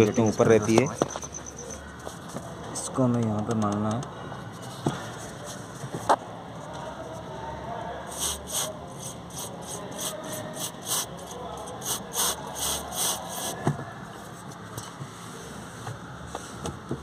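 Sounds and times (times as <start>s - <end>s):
aerosol spray hissing bursts: 8.1s - 8.7s, 9.3s - 11.1s, 11.8s - 13.6s.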